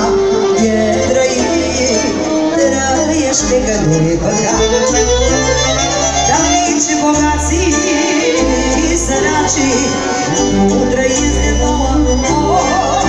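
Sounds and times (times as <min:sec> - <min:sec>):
bass line: 0:00.0 - 0:13.0
saxophone melody: 0:04.4 - 0:13.0.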